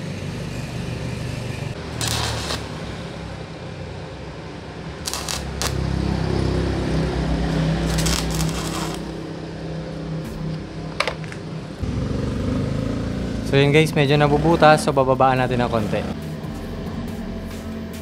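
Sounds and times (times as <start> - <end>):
arc welding crackle: 2.0 - 3.3, 5.0 - 6.0, 7.5 - 9.2.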